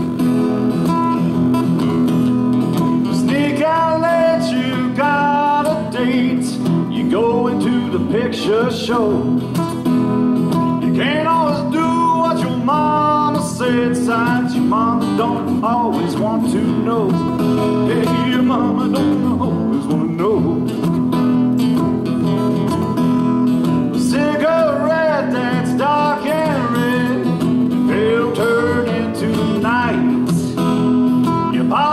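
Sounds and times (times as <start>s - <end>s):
acoustic guitars strummed: 0.0s - 31.9s
person singing: 3.1s - 9.3s, 24.0s - 30.6s.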